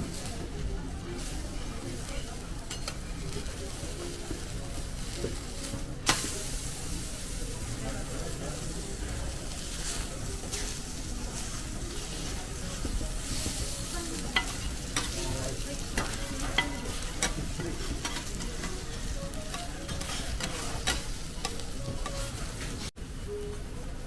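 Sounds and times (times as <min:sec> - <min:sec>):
food sizzling on a griddle: 0:00.0 - 0:23.6
metal spatulas scraping and clicking: 0:11.4 - 0:22.4.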